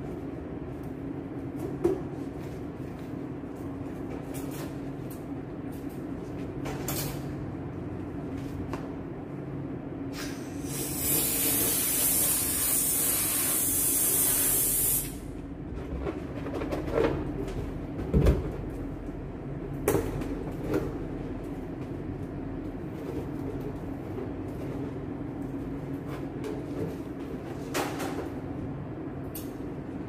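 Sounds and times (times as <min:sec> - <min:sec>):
helium hissing into balloon: 0:10.2 - 0:15.2.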